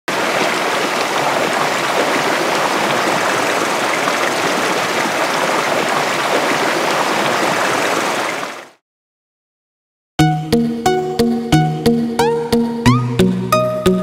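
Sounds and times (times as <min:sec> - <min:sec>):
river rushing: 0:00.1 - 0:08.7.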